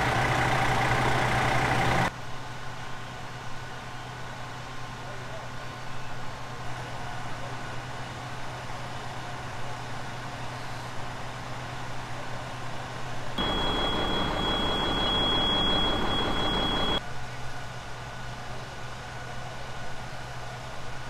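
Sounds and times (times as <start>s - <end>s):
fire truck engines idling: 0.0s - 5.0s, 6.4s - 17.0s
high-pitched whine: 13.4s - 17.0s.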